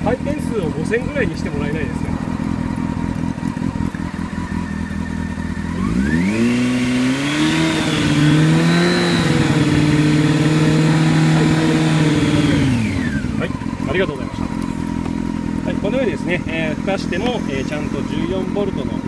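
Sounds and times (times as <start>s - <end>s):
motorcycle engine idling and revving: 0.0s - 19.0s.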